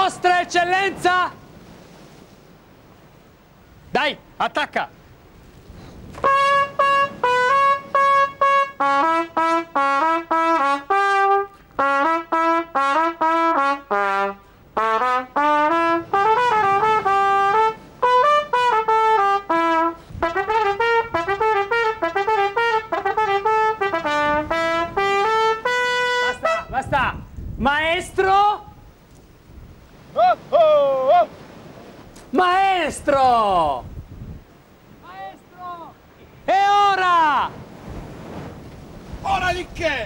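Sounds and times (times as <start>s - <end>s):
solo trumpet melody: 6.2s - 26.9s.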